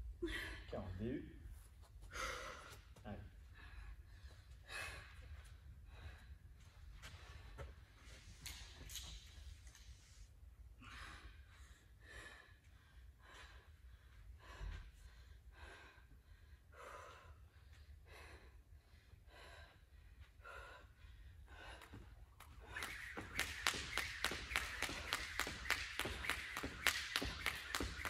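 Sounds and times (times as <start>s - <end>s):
woman breathing hard: 2.0s - 7.8s, 10.7s - 23.2s
jump rope clicking on floor: 21.6s - 28.0s.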